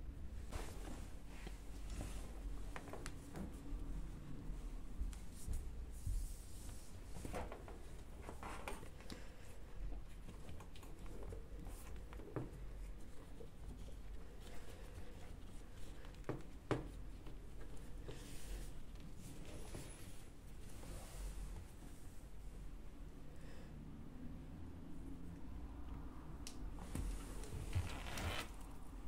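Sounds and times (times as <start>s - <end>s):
cable rubbing in plastic channel: 27.4s - 28.7s.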